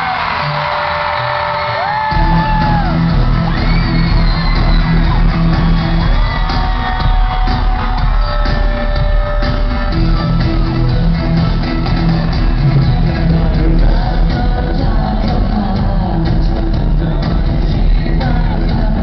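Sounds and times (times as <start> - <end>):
fans screaming and whooping: 0.0 - 19.0
live band playing loud music: 0.0 - 19.0.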